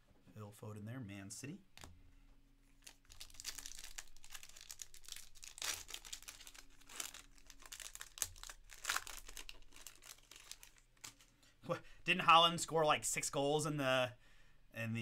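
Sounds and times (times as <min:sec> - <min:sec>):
foil pack ripping: 0:02.8 - 0:11.2
foil pack crinkling: 0:02.8 - 0:11.4.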